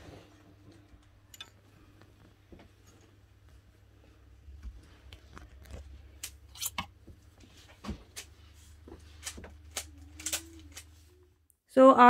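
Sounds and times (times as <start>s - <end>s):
plastic hangers clicking on rail: 9.0s - 11.1s.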